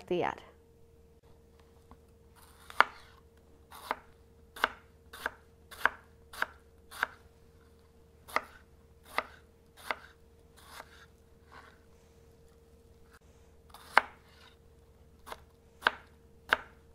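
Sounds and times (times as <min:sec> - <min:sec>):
knife cutting on cutting board: 0:02.4 - 0:07.2, 0:08.3 - 0:11.8, 0:13.7 - 0:14.6.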